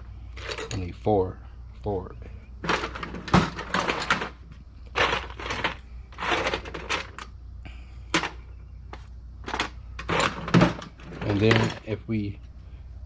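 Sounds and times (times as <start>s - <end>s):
screws rattling: 2.6s - 7.3s, 9.4s - 12.0s.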